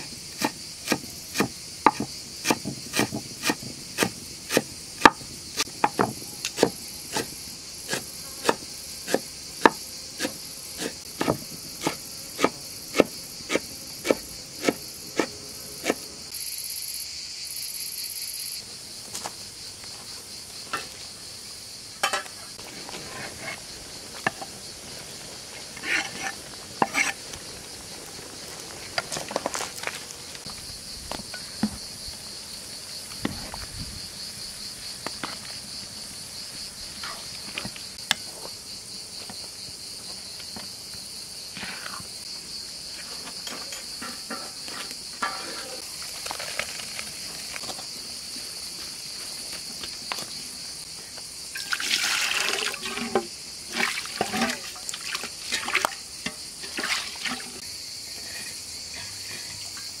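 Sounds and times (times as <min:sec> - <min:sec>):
insects chirring: 0:00.0 - 1:00.0
metal pots clicking: 0:22.0 - 0:22.3
water gushing from pot: 0:51.6 - 0:57.6.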